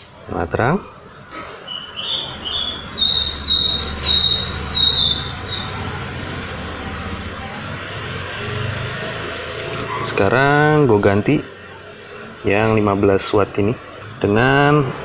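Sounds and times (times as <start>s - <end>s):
passing road traffic rumble: 0.0s - 15.0s
small bird chirping: 1.6s - 6.8s.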